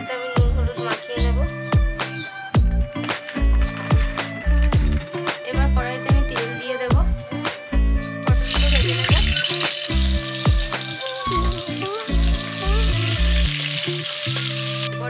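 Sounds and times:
background music: 0.0s - 15.0s
vegetables sizzling in hot oil: 8.4s - 15.0s.

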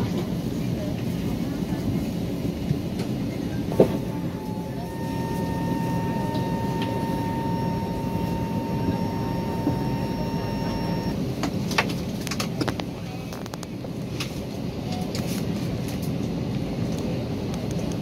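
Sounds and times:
airliner cabin hum: 0.0s - 18.0s
thin steady whine: 3.7s - 11.3s.

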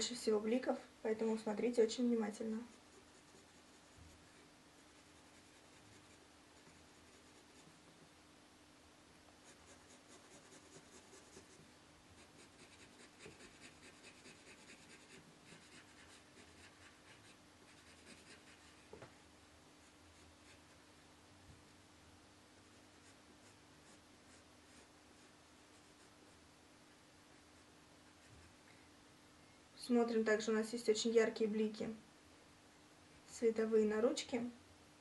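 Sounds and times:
faint steady hum: 0.0s - 35.0s
pencil scratching on paper: 2.5s - 7.8s, 9.4s - 11.6s, 12.2s - 18.9s, 19.8s - 20.8s, 22.6s - 26.4s.

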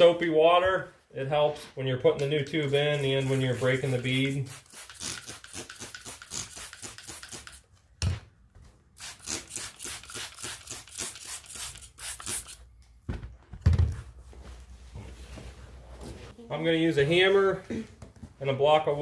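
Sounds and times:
spray bottle squirting: 2.9s - 7.7s, 9.0s - 12.7s.

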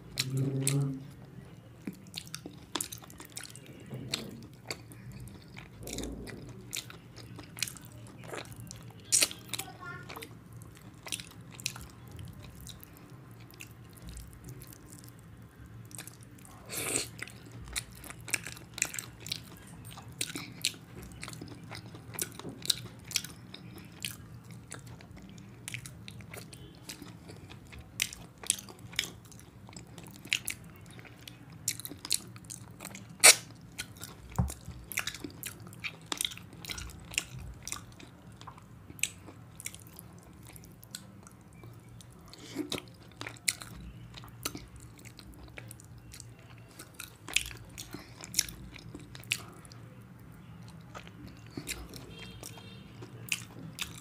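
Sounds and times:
faint low hum: 0.0s - 54.0s
wet chewing and lip smacks: 15.8s - 54.0s.

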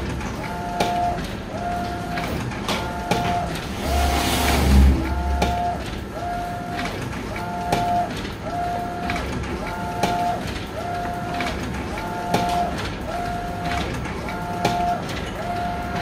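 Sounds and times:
printer carriage motor whine: 0.0s - 16.0s
low rumble: 3.8s - 5.7s.

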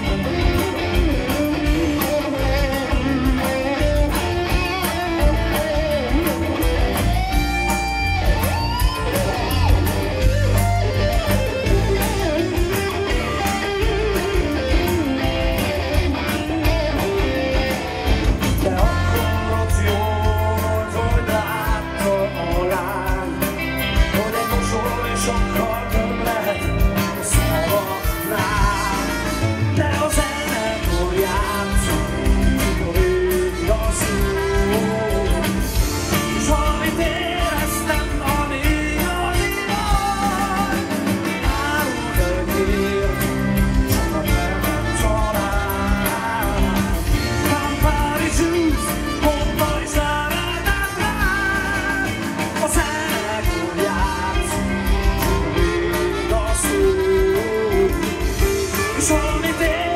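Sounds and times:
man singing into microphone: 0.0s - 6.4s, 18.4s - 59.9s
bass guitar: 0.0s - 59.9s
drums: 0.0s - 59.9s
electric guitars: 0.0s - 59.9s
trumpet: 24.1s - 59.9s.

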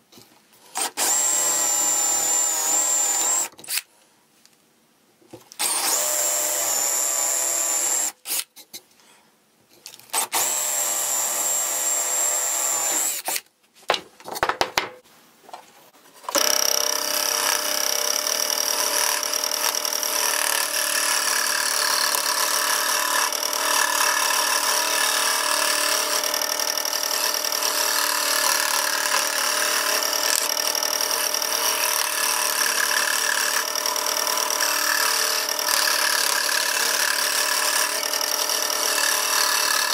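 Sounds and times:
power drill boring through plywood: 0.8s - 3.6s, 5.6s - 8.2s, 10.2s - 13.3s, 16.3s - 39.9s
scroll saw whining and rattling: 0.8s - 3.8s, 5.6s - 8.4s, 16.3s - 39.9s.

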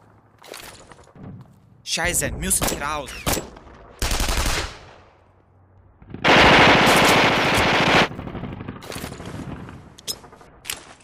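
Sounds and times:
machine-gun fire: 4.0s - 4.9s, 6.1s - 9.8s.

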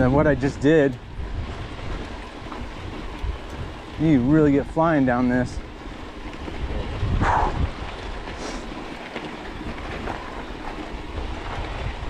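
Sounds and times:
bike tyres rattling over gravel: 0.0s - 4.7s.

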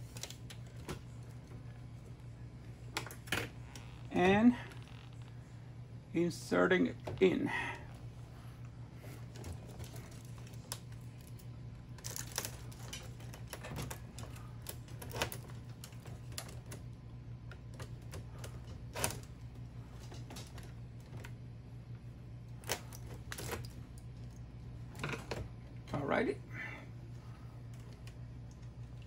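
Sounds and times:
wires clicking in plastic: 0.0s - 1.6s, 9.3s - 21.4s, 22.5s - 25.5s
steady low hum: 0.0s - 29.0s.

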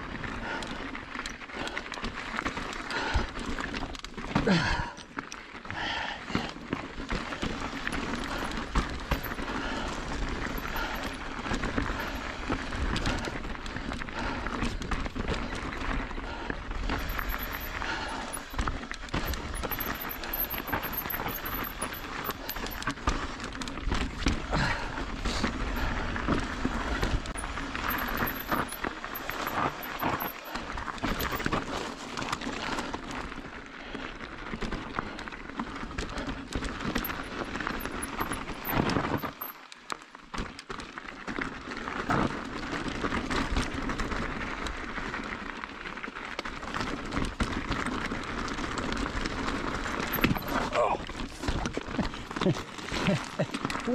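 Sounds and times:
bike clattering over bumps: 5.8s - 33.4s, 34.4s - 45.1s, 46.5s - 53.9s.

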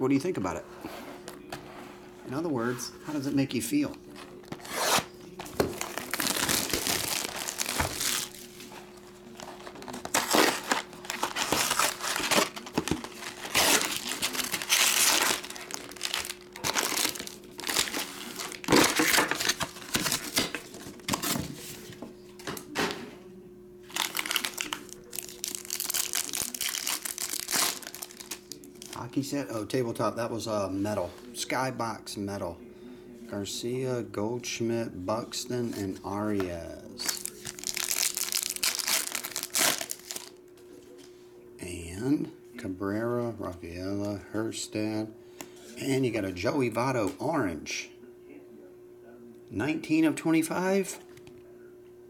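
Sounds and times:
foil wrappers crinkling: 4.3s - 21.9s, 23.9s - 29.3s, 37.0s - 40.4s
foil pack tearing: 4.4s - 8.6s, 9.4s - 21.3s, 23.9s - 29.1s, 37.0s - 40.3s.

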